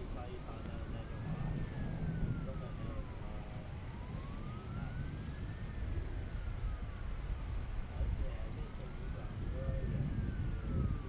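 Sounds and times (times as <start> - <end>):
wailing siren: 0.0 - 11.0.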